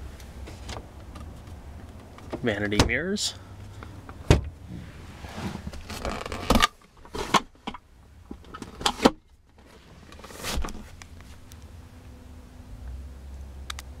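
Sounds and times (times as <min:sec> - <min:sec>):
rustling on leather seats: 0:04.5 - 0:07.6
soft brushing: 0:04.7 - 0:05.8.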